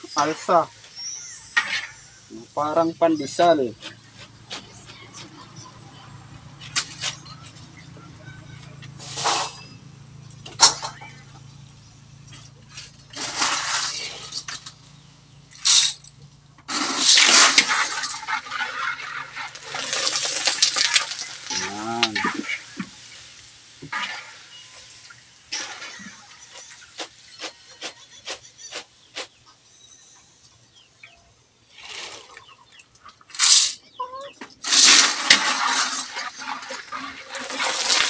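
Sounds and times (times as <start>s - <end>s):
hot oil sizzling in wok: 0.0s - 5.6s, 16.7s - 30.2s, 34.6s - 38.0s.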